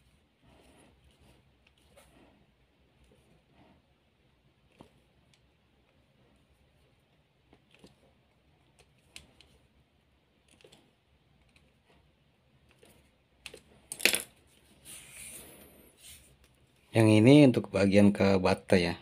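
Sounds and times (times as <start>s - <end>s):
screwdriver clattering on tiled floor: 13.9s - 14.3s.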